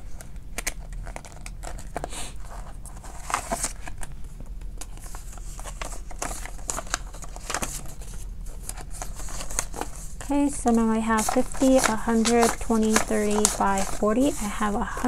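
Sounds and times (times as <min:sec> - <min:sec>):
paper bills rustling: 0:04.8 - 0:15.0
plastic pouches crinkling: 0:04.8 - 0:15.0.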